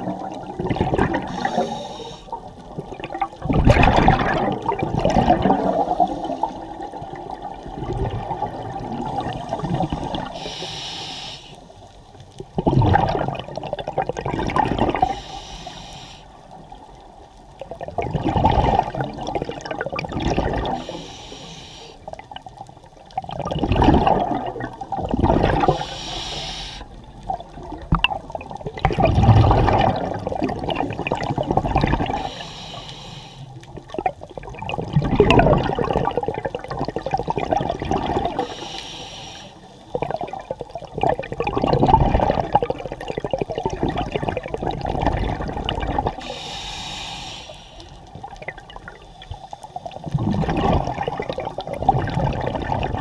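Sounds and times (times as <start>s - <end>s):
rush of bubbles: 0.0s - 10.7s, 12.4s - 15.4s, 17.6s - 21.4s, 22.1s - 32.8s, 33.6s - 38.9s, 39.9s - 53.0s
regulator inhale hiss: 1.2s - 2.4s, 5.7s - 6.7s, 10.2s - 11.9s, 15.0s - 16.6s, 20.8s - 22.2s, 25.7s - 27.0s, 32.1s - 33.6s, 38.4s - 40.0s, 46.2s - 48.2s, 48.9s - 50.1s.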